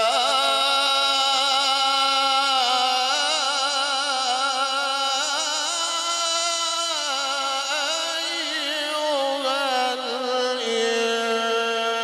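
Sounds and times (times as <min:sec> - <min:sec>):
man chanting melodically: 0:00.0 - 0:12.0.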